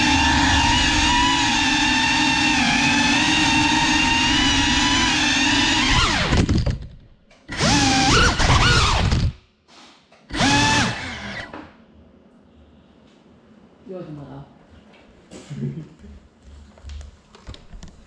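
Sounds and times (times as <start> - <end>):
drone motors whining: 0.0 - 6.8, 7.5 - 9.4, 10.3 - 11.6.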